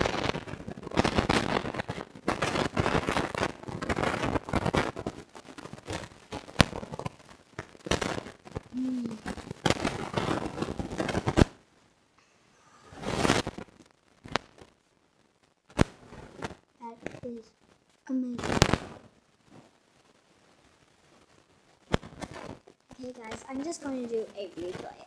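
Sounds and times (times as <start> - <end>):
crackling handling noise: 20.7 - 25.0.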